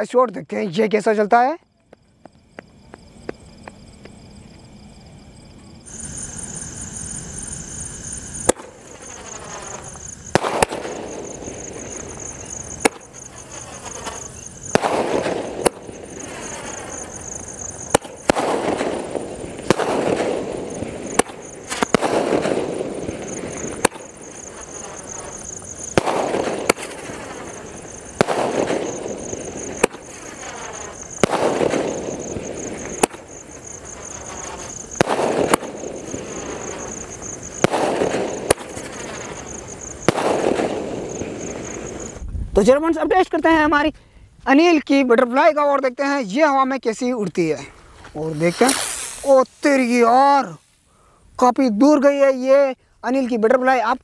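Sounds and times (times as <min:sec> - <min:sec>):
firework hiss: 0:05.7 - 0:42.3, 0:47.5 - 0:51.4
firework pops: 0:08.4 - 0:42.4, 0:48.0 - 0:49.9.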